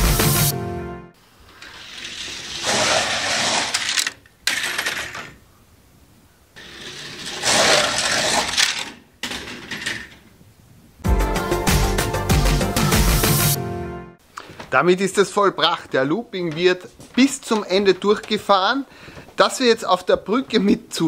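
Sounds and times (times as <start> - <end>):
plastic wheels clattering on track: 1.5 - 5.4, 6.6 - 10.2.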